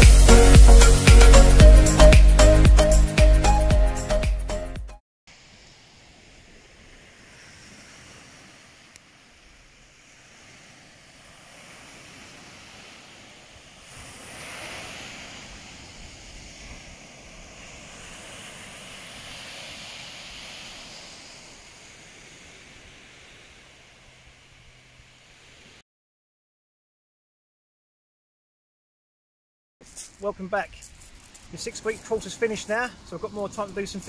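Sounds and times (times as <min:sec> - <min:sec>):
wind on microphone: 0:13.8 - 0:23.1.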